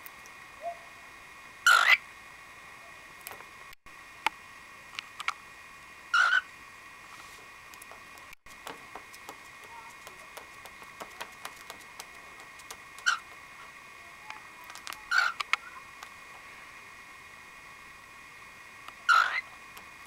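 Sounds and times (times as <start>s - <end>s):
cockatiel chirping: 13.0s - 13.2s, 14.8s - 15.5s, 19.1s - 19.4s.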